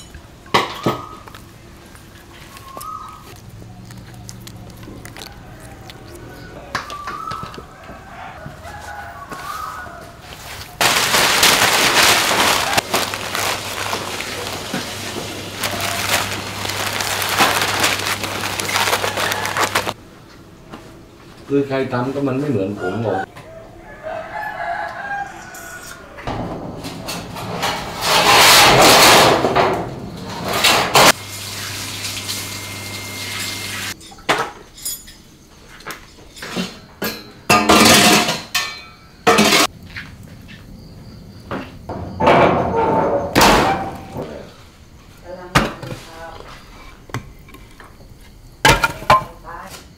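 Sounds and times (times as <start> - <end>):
newspaper crumpling: 10.4 - 20.0
small handling ticks: 15.6 - 19.9
metallic clanks: 26.3 - 31.0
metal lid scraping concrete: 26.3 - 31.1.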